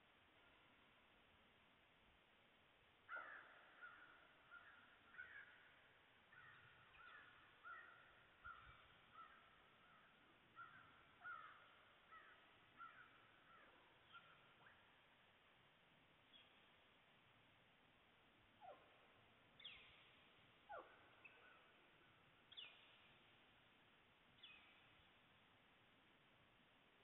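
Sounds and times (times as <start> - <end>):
crows cawing: 3.1 - 5.6, 6.3 - 8.6, 10.6 - 13.6.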